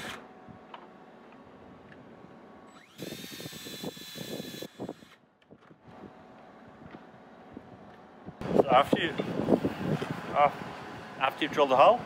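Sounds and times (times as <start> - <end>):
cordless drill whining: 2.7 - 5.2.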